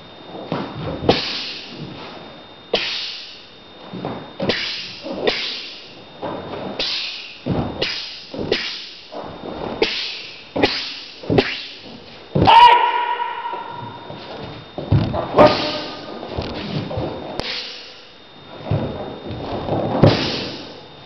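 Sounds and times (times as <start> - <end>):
bare feet striking wooden floor: 13.5 - 17.5.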